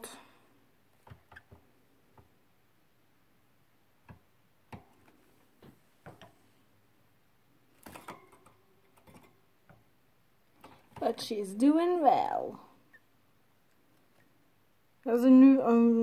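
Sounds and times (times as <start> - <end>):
faint clicks and taps: 0.9 - 2.4, 4.0 - 6.4.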